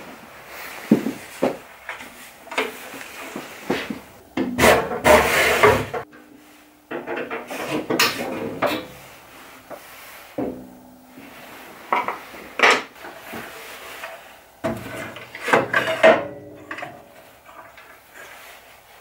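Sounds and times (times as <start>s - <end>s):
metal sliding and rubbing: 4.6s - 19.0s.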